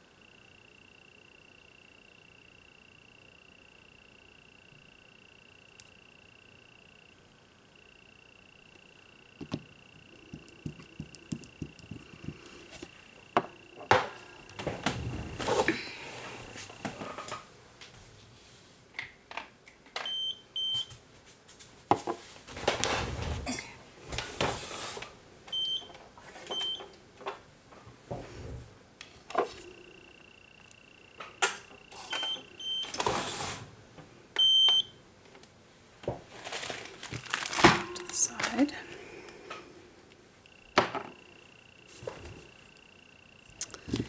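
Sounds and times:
clicks and rustling of small items: 36.3 - 38.8.

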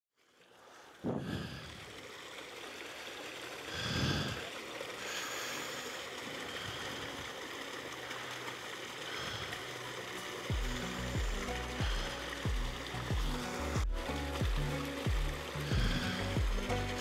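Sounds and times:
wind hiss on microphone: 1.0 - 2.0.

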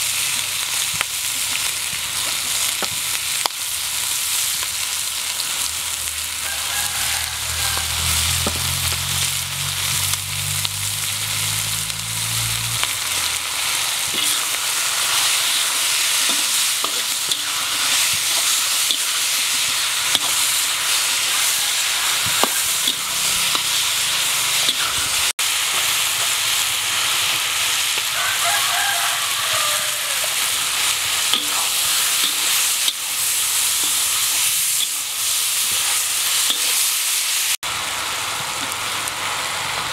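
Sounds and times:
meat sizzling in hot oil: 0.0 - 39.9
metal spatula scraping a wok: 11.3 - 28.1, 28.8 - 37.3.

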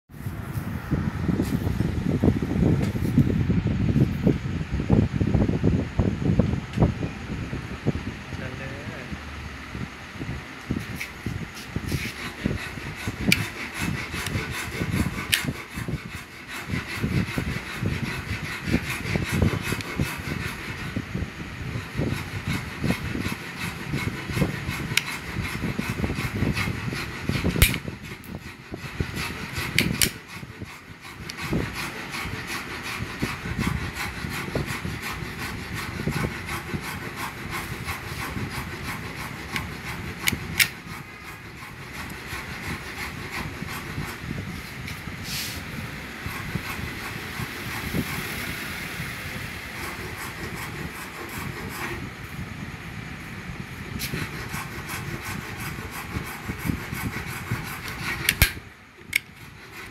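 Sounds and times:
rushing noise with low rumble: 0.1 - 32.3, 33.0 - 59.8
sharp metallic click: 27.6 - 27.8, 29.8 - 30.2, 58.2 - 59.3.

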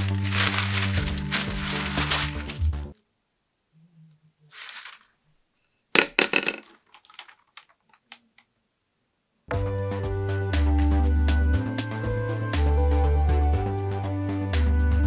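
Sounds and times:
cardboard tube clattering: 0.0 - 2.7
stiff paper rustling: 0.0 - 3.0, 4.5 - 5.2.

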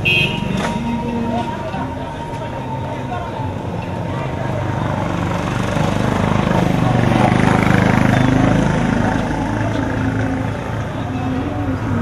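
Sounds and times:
voices in background: 0.5 - 12.0
small vehicle engine running: 3.3 - 12.0.

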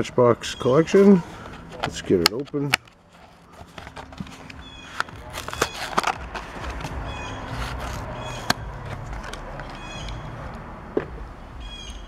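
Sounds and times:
plastic blister pack crackling: 1.4 - 10.1.

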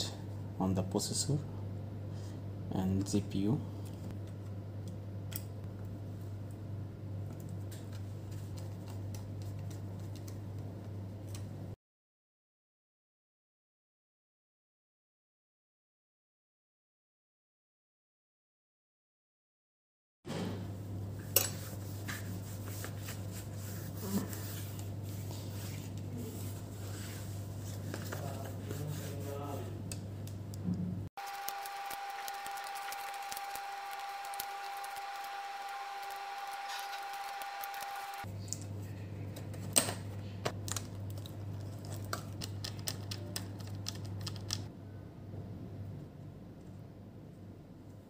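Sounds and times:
cloth rubbing on laptop screen: 21.6 - 29.6, 31.2 - 38.3.

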